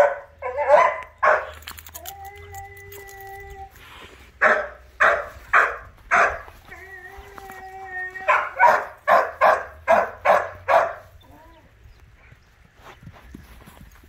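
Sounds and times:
dog barking: 0.0s - 1.6s, 4.4s - 6.5s, 8.3s - 11.1s
dog whining: 1.8s - 4.0s.

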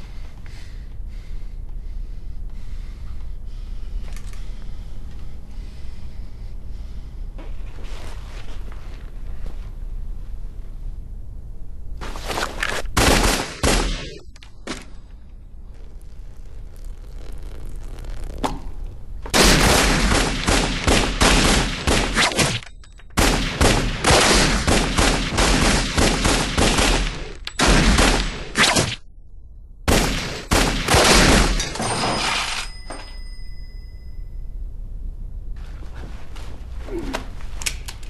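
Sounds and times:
rapid gunfire: 13.0s - 14.2s, 19.4s - 22.6s, 23.2s - 29.0s, 29.9s - 31.6s
thin ringing tones: 31.6s - 34.8s.

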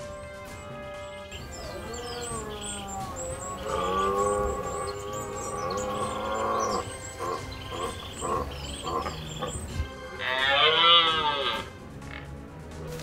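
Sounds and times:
deer stag roaring: 1.4s - 9.6s, 10.2s - 11.7s
deer grunting calls: 1.4s - 12.4s.

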